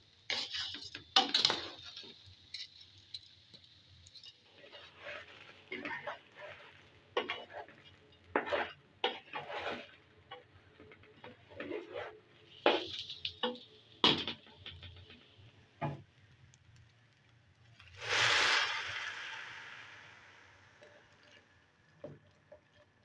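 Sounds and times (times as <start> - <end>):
wooden spatula scraping a pot: 0.3 - 13.7, 18.0 - 19.7
water pouring into a pot: 17.8 - 23.0.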